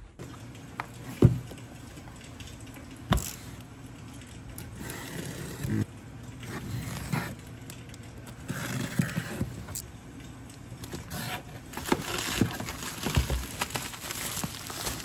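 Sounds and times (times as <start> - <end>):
cardboard and plastic wrap rustling: 10.8 - 15.0.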